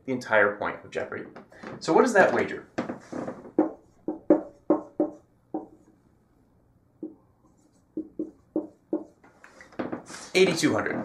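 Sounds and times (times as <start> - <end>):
marker squeaking on whiteboard: 3.0 - 5.9, 7.0 - 11.0.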